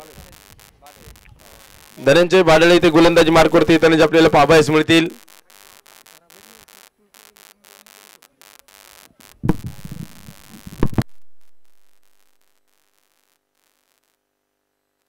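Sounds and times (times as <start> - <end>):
faint hiss: 0.0 - 15.0
low rumbling knocks: 9.4 - 11.6
loud low thump: 9.4 - 11.9.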